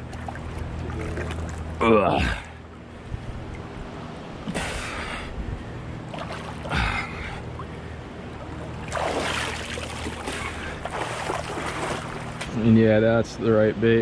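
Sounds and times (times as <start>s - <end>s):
low steady hum: 0.0s - 14.0s
swimmer splashing in river water: 6.0s - 7.7s, 8.3s - 12.5s.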